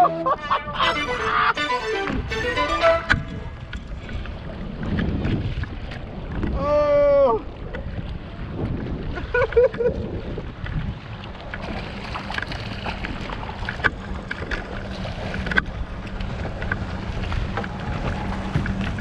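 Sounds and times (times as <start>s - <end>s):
water sloshing around kayak: 0.0s - 19.0s
wind buffeting microphone: 3.0s - 19.0s
fish thrashing and splashing: 11.5s - 19.0s.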